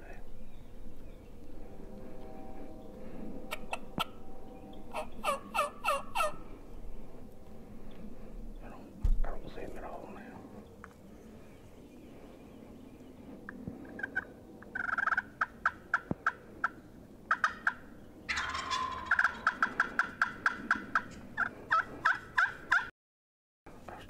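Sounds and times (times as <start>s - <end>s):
wild turkey calling: 4.8s - 6.6s, 13.8s - 22.9s.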